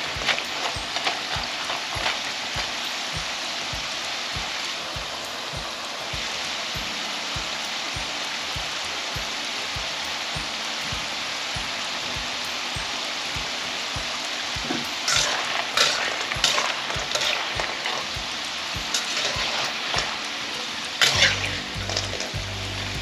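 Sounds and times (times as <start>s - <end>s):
food sizzling in a pan: 0.0s - 23.0s.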